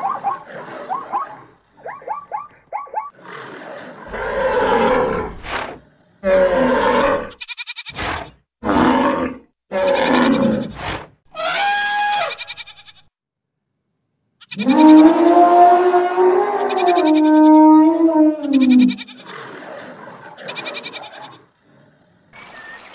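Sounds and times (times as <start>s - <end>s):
rough cartoon animal calls: 6.2s - 13.0s, 14.4s - 21.4s
fast rattling sound: 7.3s - 8.2s, 12.1s - 13.1s, 14.4s - 15.4s, 16.6s - 17.5s, 18.4s - 19.4s, 20.4s - 21.4s
long pitched animal call: 14.4s - 19.4s.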